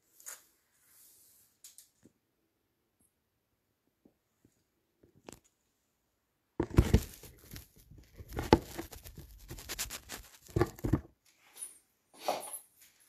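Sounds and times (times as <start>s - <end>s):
cloth rustling against microphone: 6.6s - 11.7s.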